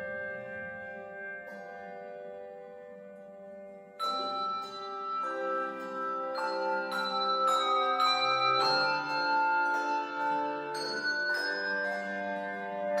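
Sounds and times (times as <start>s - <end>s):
handbell choir ringing chords: 3.5s - 13.0s.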